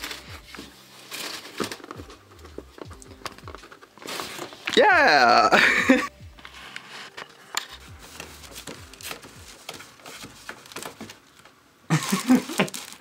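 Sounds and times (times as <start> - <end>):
cardboard clicking and rubbing: 0.0 - 4.8, 6.7 - 11.5.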